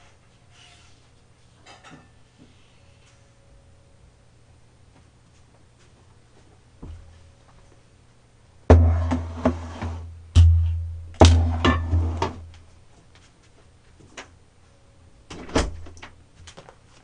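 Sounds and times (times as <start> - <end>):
pot thumping on table: 8.7 - 12.4.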